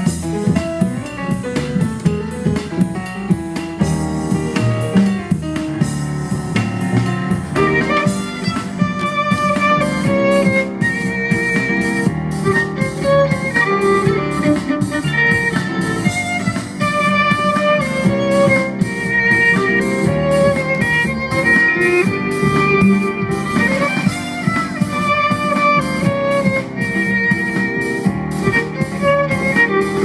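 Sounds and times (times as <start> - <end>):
double bass accompaniment: 0.0 - 30.0
bowed violin melody: 7.0 - 30.0.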